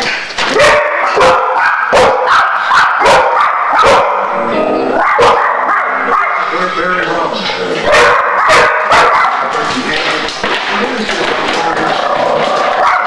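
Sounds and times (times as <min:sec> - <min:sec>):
dog barking: 0:00.5 - 0:04.3, 0:05.0 - 0:06.5, 0:07.8 - 0:09.5, 0:12.8 - 0:13.0
background music: 0:04.2 - 0:05.2.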